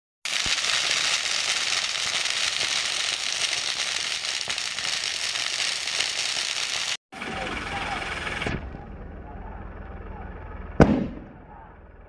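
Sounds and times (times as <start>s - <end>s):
firecrackers crackling: 0.2s - 7.0s, 10.8s - 11.2s.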